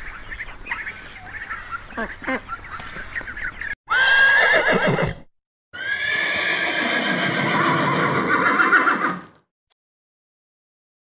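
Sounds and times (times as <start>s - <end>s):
horse whinnying: 3.9s - 9.4s.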